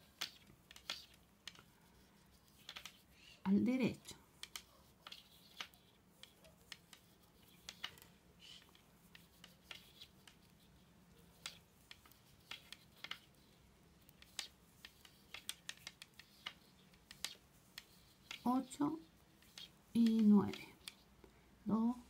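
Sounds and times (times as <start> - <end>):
knitting needles clicking: 0.0 - 22.0.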